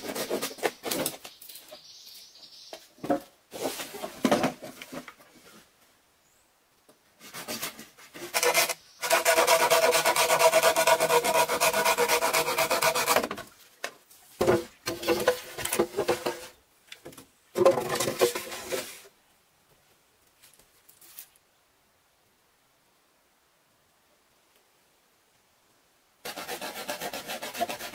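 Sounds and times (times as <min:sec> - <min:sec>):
bamboo poles scraping together: 0:00.0 - 0:01.8, 0:03.0 - 0:05.7, 0:07.2 - 0:16.6, 0:17.6 - 0:19.1, 0:26.3 - 0:27.9.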